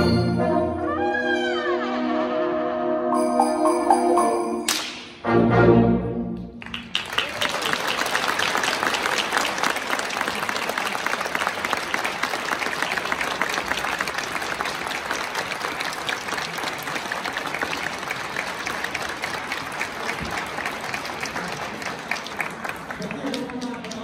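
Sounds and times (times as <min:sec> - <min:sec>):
audience applauding: 0:06.6 - 0:24.0.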